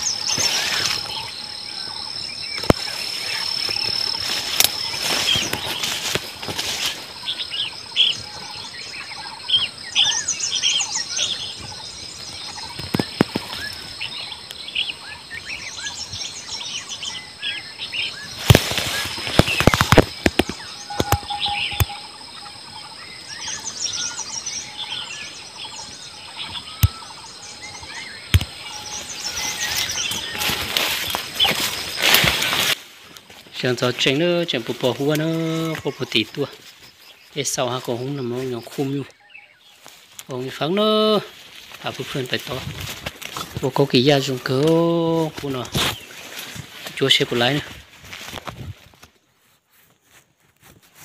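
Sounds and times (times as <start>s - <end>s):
small birds chirping: 0.0s - 50.4s
sharp clicks: 3.6s - 6.6s, 18.4s - 22.0s, 28.3s - 28.6s.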